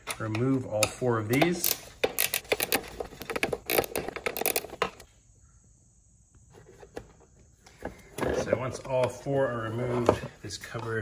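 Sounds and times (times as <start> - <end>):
ratcheting wrench clicking: 0.0 - 5.0.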